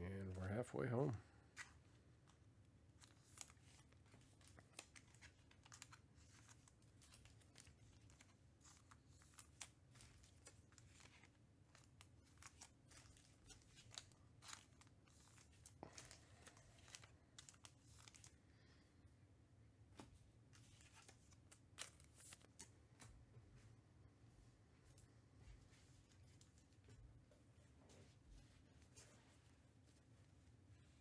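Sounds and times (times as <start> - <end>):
low room hum: 0.0 - 31.0
card packs crinkling and clicking: 0.2 - 18.4, 20.0 - 23.1.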